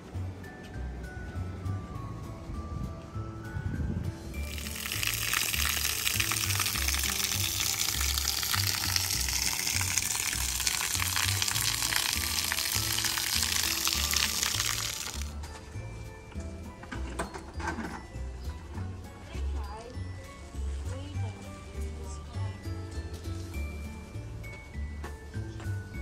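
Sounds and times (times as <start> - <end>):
background music with bass line: 0.0 - 26.0
shower water splashing on tiles: 4.4 - 15.4.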